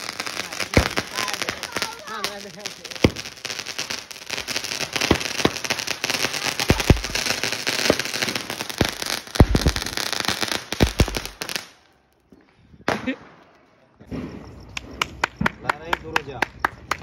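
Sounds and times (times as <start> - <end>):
firecracker bangs: 0.0 - 11.7
firecrackers crackling and popping: 0.0 - 17.0.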